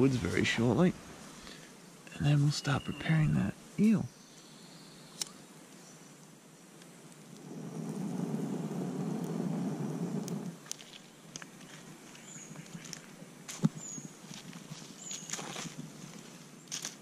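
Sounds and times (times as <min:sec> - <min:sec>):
man blowing on embers: 0:00.0 - 0:02.2, 0:05.1 - 0:13.0.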